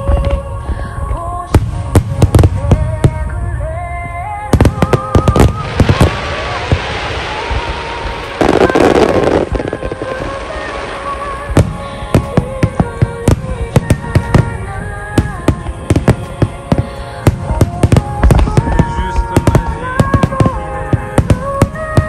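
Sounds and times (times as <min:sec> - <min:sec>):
music playing: 0:00.0 - 0:22.0
firework boom: 0:04.5 - 0:14.6
crackling firework pops: 0:04.6 - 0:22.0.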